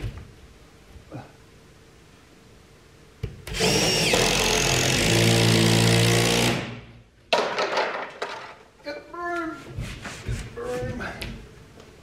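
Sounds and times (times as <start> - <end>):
power tool whining on wood: 3.6 - 6.6.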